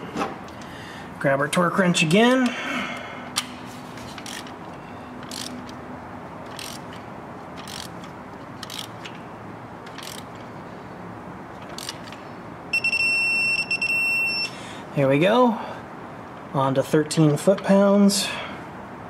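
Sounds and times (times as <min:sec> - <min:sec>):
ratchet clicking: 0:04.1 - 0:04.6, 0:05.2 - 0:05.8, 0:06.4 - 0:09.2, 0:09.8 - 0:10.5, 0:11.6 - 0:12.2
high-pitched wrench beep: 0:12.7 - 0:14.5.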